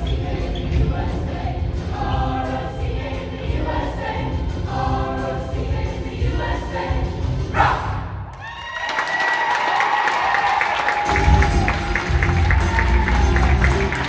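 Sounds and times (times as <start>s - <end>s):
mixed choir singing in harmony: 0.0s - 8.3s.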